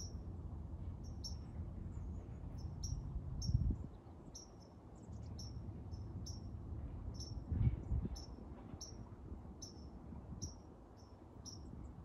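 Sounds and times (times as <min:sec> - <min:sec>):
cricket chirping: 0:00.0 - 0:00.2, 0:05.4 - 0:06.5, 0:07.2 - 0:07.4, 0:09.6 - 0:11.6.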